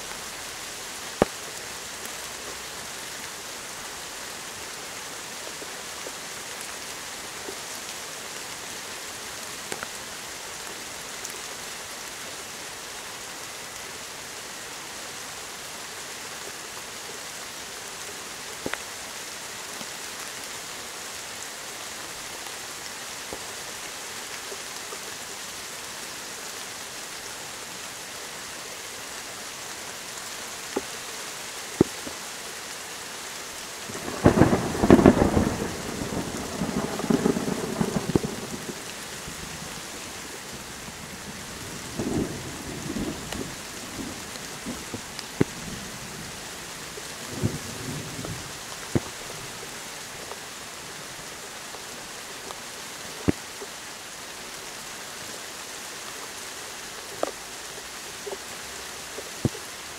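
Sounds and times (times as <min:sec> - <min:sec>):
steady rain: 0:00.0 - 0:59.9
thunder rolling: 0:34.0 - 0:38.8.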